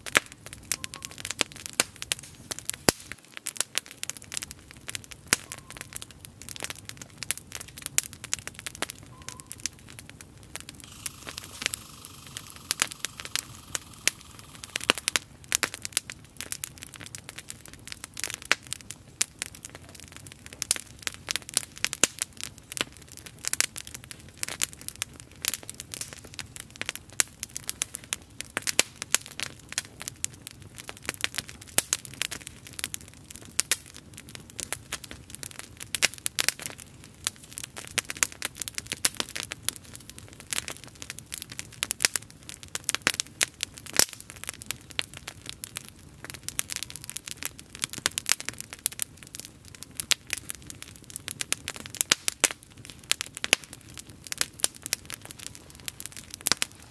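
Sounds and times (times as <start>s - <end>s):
campfire crackling and popping: 0.0s - 56.9s
steady hiss: 10.8s - 15.4s.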